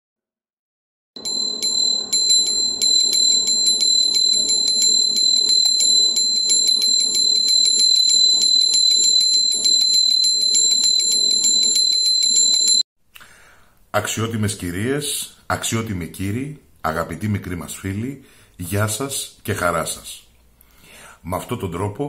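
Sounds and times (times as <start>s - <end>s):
high-pitched tone: 1.2s - 12.8s
fast even ticking: 2.1s - 12.8s.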